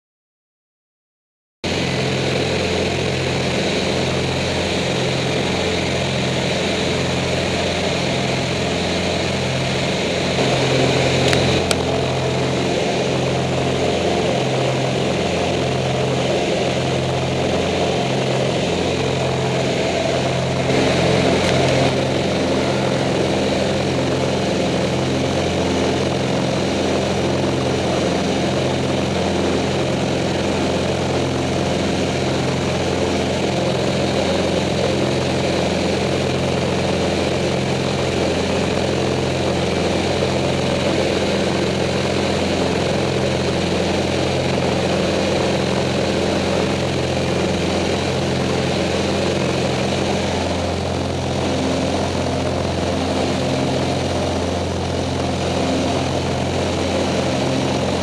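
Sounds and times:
propeller aircraft engines droning: 1.6s - 58.0s
rushing noise: 7.5s - 32.4s.

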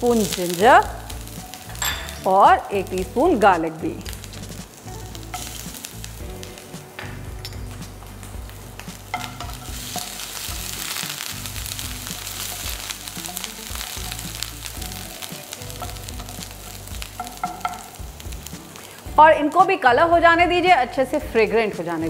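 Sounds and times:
garlic sizzling in hot oil: 0.0s - 22.0s
wooden spoon stirring: 12.0s - 18.0s.

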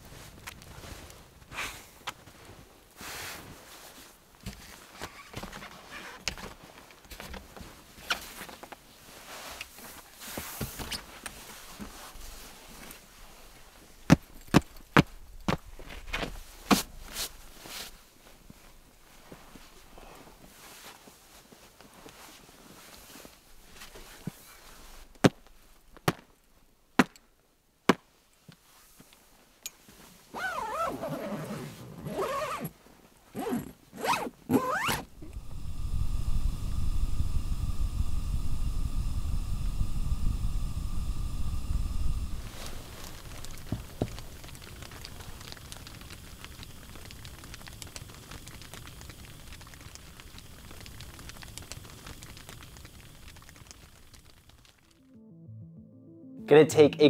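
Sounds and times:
tent fabric and clothing rustling: 0.0s - 25.8s, 28.1s - 35.9s
tent door zipper: 30.3s - 32.8s, 33.4s - 35.2s
steady low rush: 35.1s - 46.1s, 54.9s - 57.0s.

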